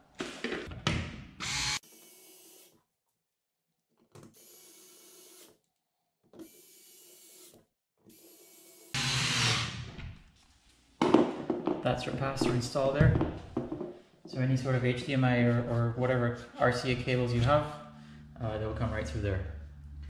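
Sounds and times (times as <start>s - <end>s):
cordless screwdriver running: 1.4s - 1.8s.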